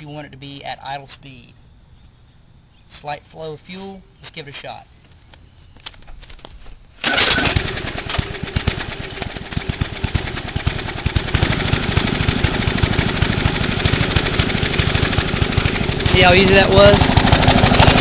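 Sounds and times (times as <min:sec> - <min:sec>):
small lawn mower engine idling: 0:07.0 - 0:18.0.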